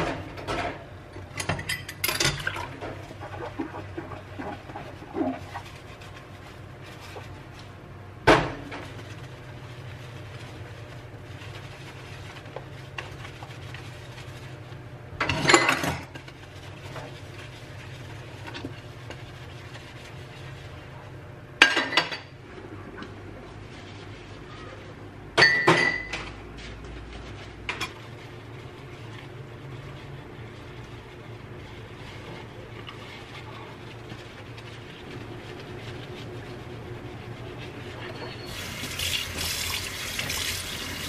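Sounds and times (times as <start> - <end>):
dishes clattering in metal sink: 0.0 - 4.6, 15.2 - 16.3, 21.6 - 22.4, 25.3 - 26.4.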